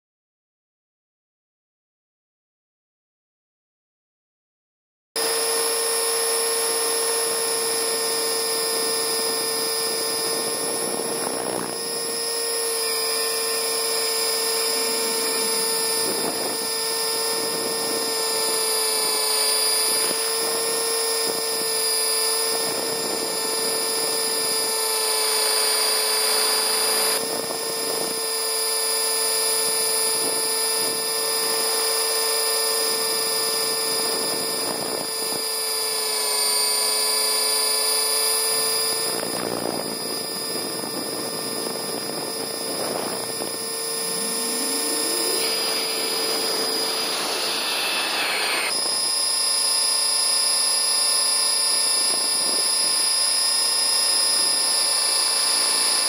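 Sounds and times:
rotor rushing: 0:05.2 - 0:28.2, 0:38.4 - 0:51.0
helicopter motor whine: 0:05.2 - 0:56.0.

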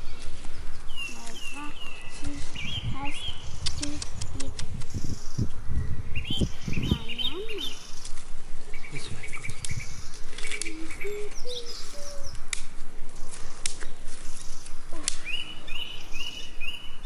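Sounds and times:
small birds chirping: 0:00.0 - 0:17.0
knife cutting and scraping branches: 0:12.4 - 0:15.5.

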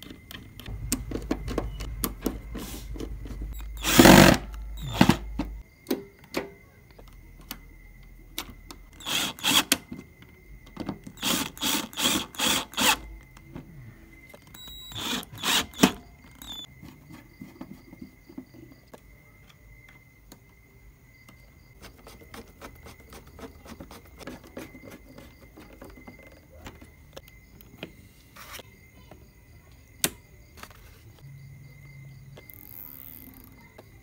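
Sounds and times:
cordless drill bursts: 0:03.7 - 0:05.2, 0:09.0 - 0:09.8, 0:11.2 - 0:13.1, 0:14.6 - 0:16.7
faint steady high tone: 0:12.8 - 0:16.7.

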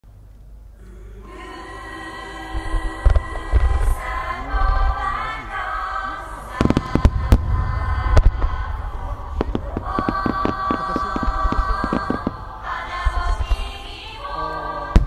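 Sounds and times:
background music: 0:00.8 - 0:15.0
fireworks booms and bangs: 0:06.4 - 0:13.8.

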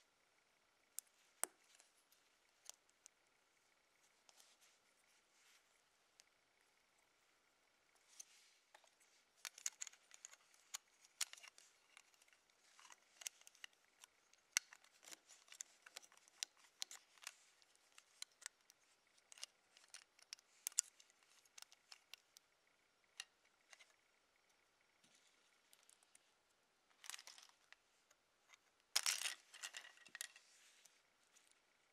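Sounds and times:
plastic toy bricks clicking: 0:09.4 - 0:22.4, 0:27.0 - 0:27.8, 0:29.0 - 0:30.4.

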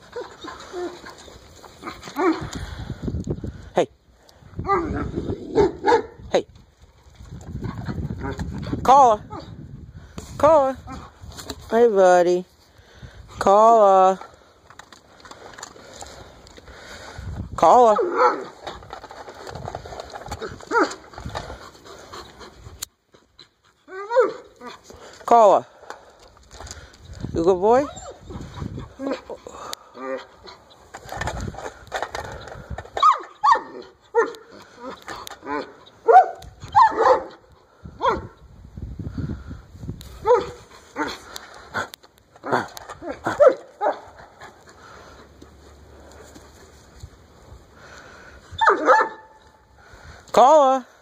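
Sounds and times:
dog vocalizing in pitched calls: 0:48.5 - 0:49.4.

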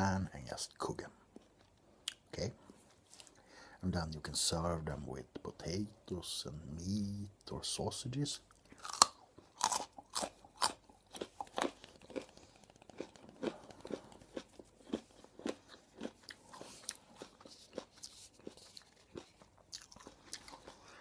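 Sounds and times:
carrot crunching: 0:08.5 - 0:21.0.

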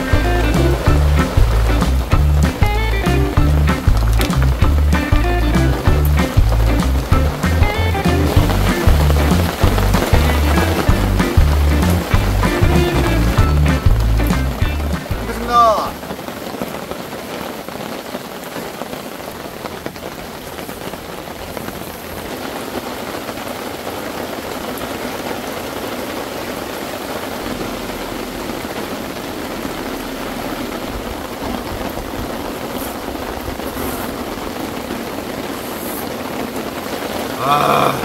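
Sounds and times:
rain falling on a tarp: 0:00.0 - 0:38.0.

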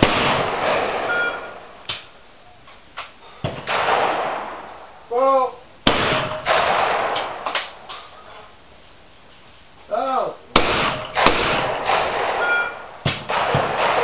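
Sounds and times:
loud close shotgun shot: 0:00.0 - 0:01.4, 0:03.6 - 0:04.7, 0:05.8 - 0:07.8, 0:10.6 - 0:14.0
distant shotgun shots echoing: 0:00.0 - 0:01.7, 0:03.6 - 0:04.9, 0:05.9 - 0:07.9, 0:10.6 - 0:14.0
person shouting a call: 0:05.1 - 0:05.6.

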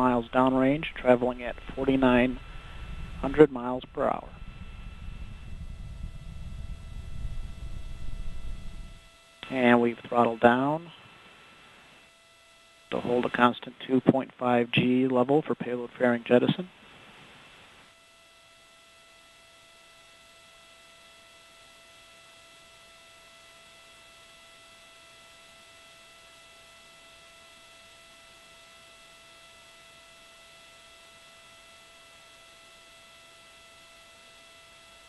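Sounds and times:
faint steady hiss: 0:00.0 - 0:19.1
high electrical hum: 0:00.0 - 0:35.0.

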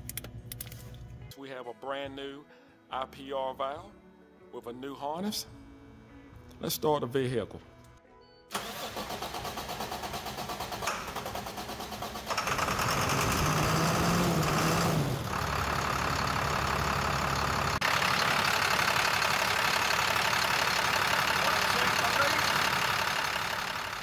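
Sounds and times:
diesel engine cranking and idling: 0:08.5 - 0:24.0.

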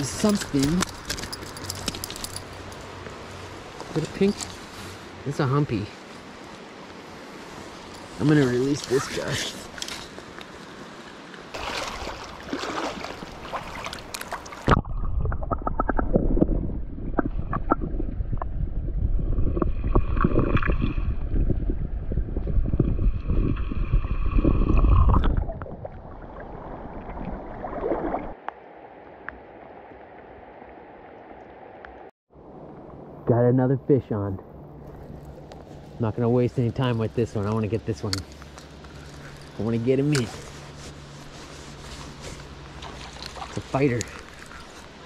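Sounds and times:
muffled underwater river rushing: 0:10.9 - 0:33.4
water splashing: 0:11.5 - 0:18.0, 0:23.2 - 0:32.0, 0:37.4 - 0:45.0.

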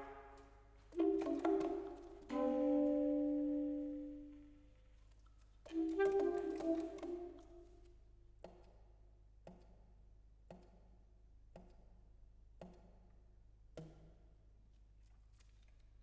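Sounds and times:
saxophone percussive pops: 0:01.0 - 0:02.6, 0:05.7 - 0:07.5.

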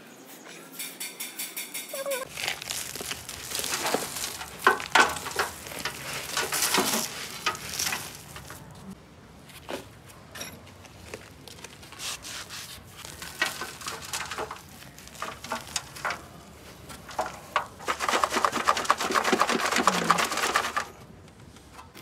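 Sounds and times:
soil and pebbles pouring into metal sink: 0:02.3 - 0:08.8, 0:12.8 - 0:21.0.

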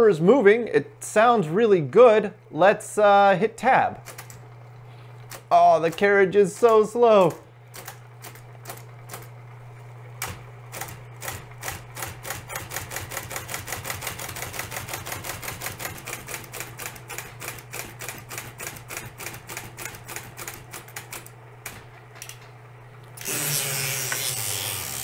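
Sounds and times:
typewriter motor humming: 0:03.9 - 0:09.4, 0:10.2 - 0:22.5, 0:23.1 - 0:25.0.

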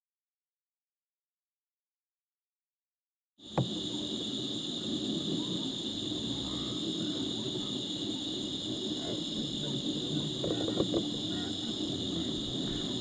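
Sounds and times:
high-pitched insect drone: 0:03.4 - 0:13.0
low rumble: 0:03.6 - 0:13.0
faint animal calls: 0:05.3 - 0:13.0.

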